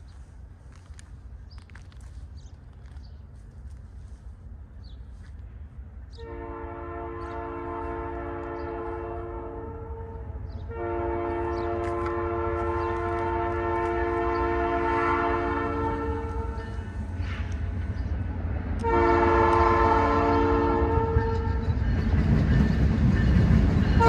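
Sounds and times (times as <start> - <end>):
low train rumble: 0.0 - 24.0
locomotive air horn blasts: 6.2 - 16.8, 18.8 - 21.6.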